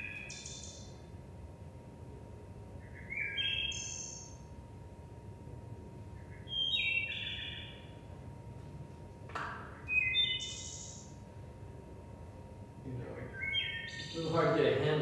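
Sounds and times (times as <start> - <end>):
bird song over loudspeakers: 0.0 - 1.1, 2.8 - 4.5, 6.1 - 8.1, 9.7 - 11.2, 12.9 - 15.0.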